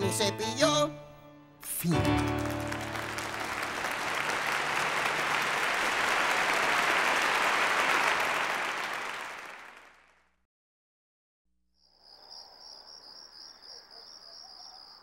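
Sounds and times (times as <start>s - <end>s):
audience applauding: 2.0s - 10.2s.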